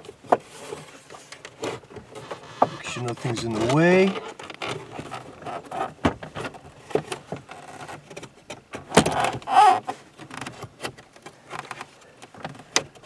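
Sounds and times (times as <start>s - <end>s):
rubbing scrape: 0.4s - 5.9s.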